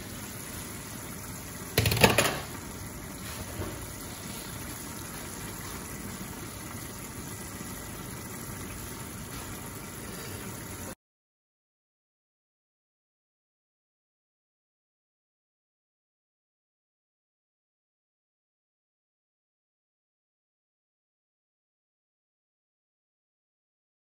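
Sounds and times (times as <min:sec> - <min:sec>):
sauce simmering and bubbling: 0:00.0 - 0:11.0.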